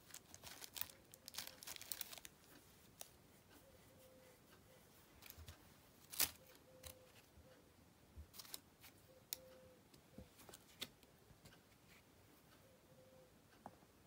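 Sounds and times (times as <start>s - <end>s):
foil ball crinkling: 0.0s - 2.3s, 6.0s - 6.4s.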